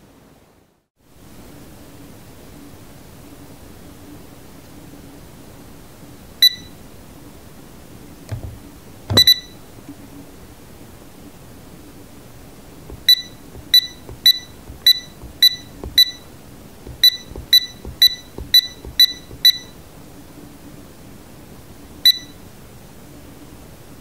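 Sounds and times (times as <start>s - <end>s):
short electronic buzzer beeps: 8.3s - 9.5s, 13.0s - 16.2s, 17.0s - 19.7s.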